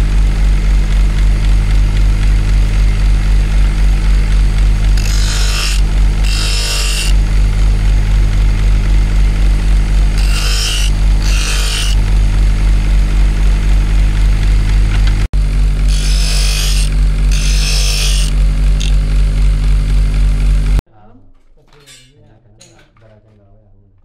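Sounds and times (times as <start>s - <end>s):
workshop machine humming: 0.0s - 20.8s
tool hissing on material: 2.9s - 7.9s, 9.0s - 12.2s, 15.6s - 19.5s.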